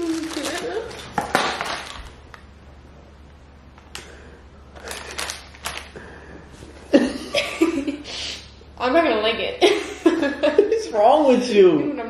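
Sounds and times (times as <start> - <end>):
plastic snack packaging crinkling: 0.0 - 2.5, 4.7 - 6.0.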